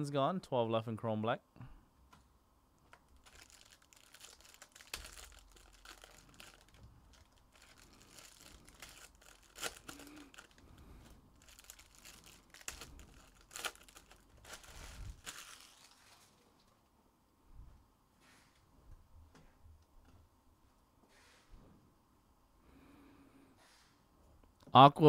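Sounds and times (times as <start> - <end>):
foil wrappers crinkling and tearing: 2.9 - 16.4.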